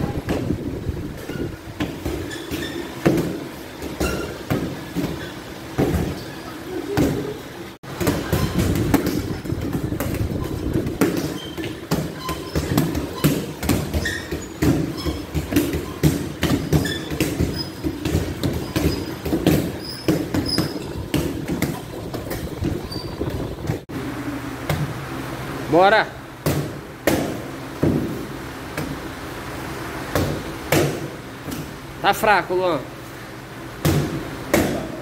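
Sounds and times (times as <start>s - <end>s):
punches thudding on heavy bags: 7.9s - 23.8s, 33.8s - 35.0s.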